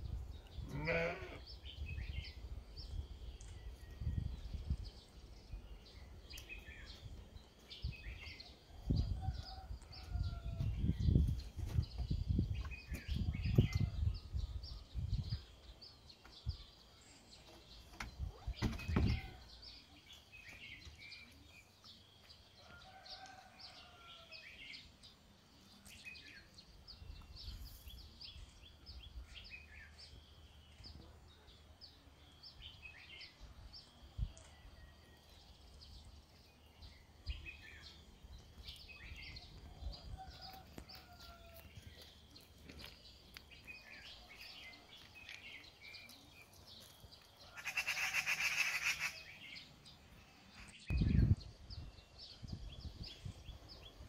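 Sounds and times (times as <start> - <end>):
small birds chirping: 0.0 - 54.0
sheep or goat bleats: 0.6 - 1.4.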